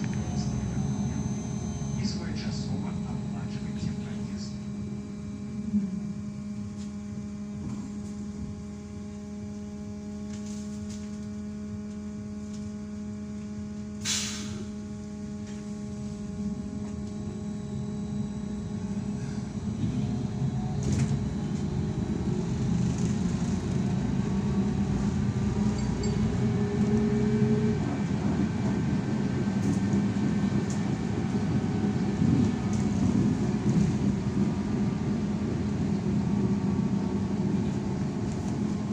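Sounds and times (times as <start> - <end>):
electrical hum: 0.0 - 38.9
motor and road rumble: 0.0 - 38.9
short hiss: 14.0 - 14.7.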